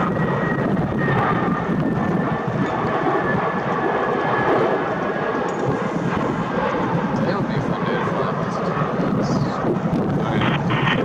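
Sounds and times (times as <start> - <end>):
jet engines running: 0.0 - 11.0
wind buffeting microphone: 0.0 - 11.0
high whine falling in pitch: 10.2 - 11.0.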